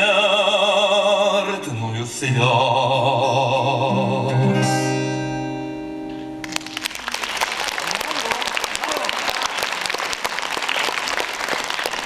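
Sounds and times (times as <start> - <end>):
man singing with vibrato: 0.0 - 5.4
acoustic guitar: 0.0 - 7.0
audience applause: 6.4 - 12.0.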